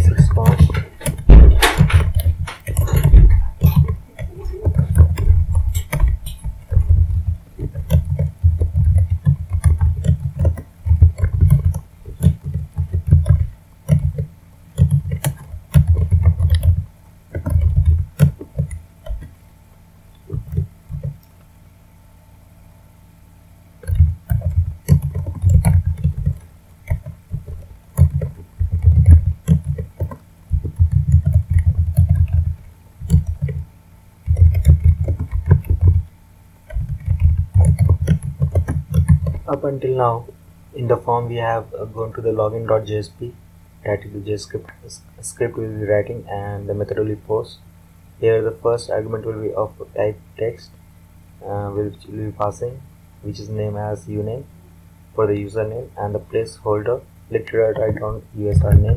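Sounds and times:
computer keyboard typing: 0:00.0 - 0:19.4, 0:20.2 - 0:21.3, 0:23.8 - 0:39.6, 0:57.6 - 0:58.9.

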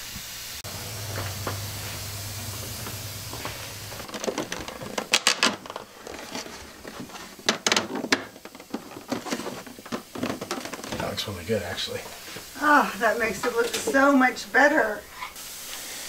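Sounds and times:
steady low hum: 0:00.6 - 0:04.6.

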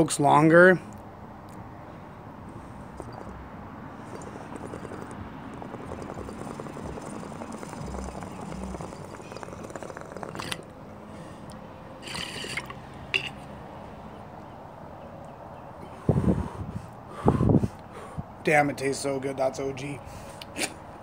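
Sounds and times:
water bubbling in a pipe: 0:02.9 - 0:10.7, 0:12.0 - 0:13.3.

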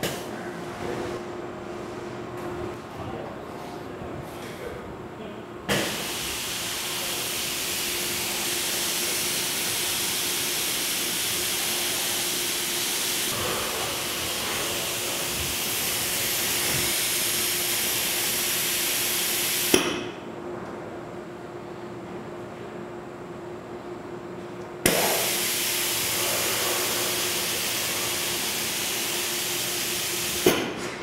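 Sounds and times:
machine hissing: 0:05.7 - 0:19.8, 0:24.9 - 0:30.7.

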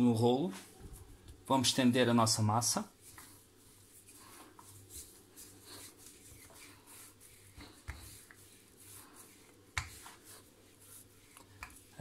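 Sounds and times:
rolling pin rolling over dough: 0:02.8 - 0:12.0.

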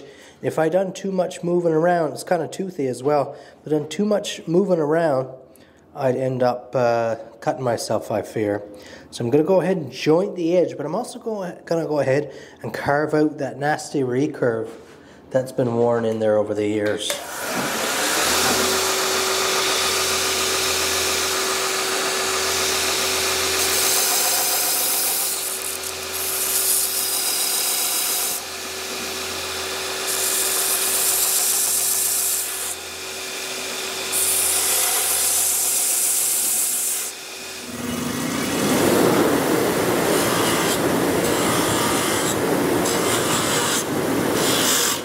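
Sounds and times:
belt grinder humming: 0:17.2 - 0:45.0
blade grinding hiss: 0:38.5 - 0:45.0.

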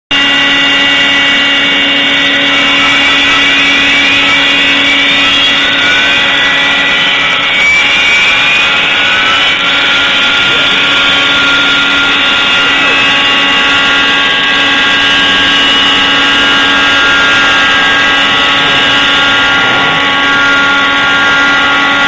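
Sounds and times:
router spindle whine: 0:00.1 - 0:22.0
short rising machine tones: 0:00.1 - 0:22.0.

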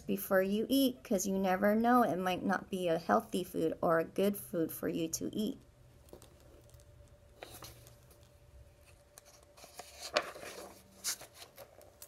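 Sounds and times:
book pages rustling: 0:06.0 - 0:12.0.

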